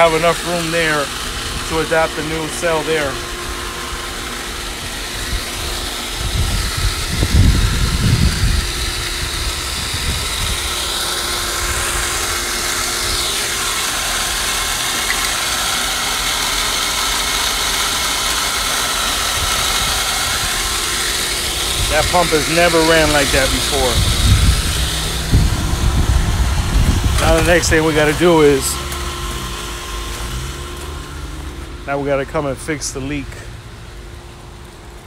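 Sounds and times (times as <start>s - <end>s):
pool pump humming: 0.0s - 35.0s
low rumble: 23.8s - 28.0s.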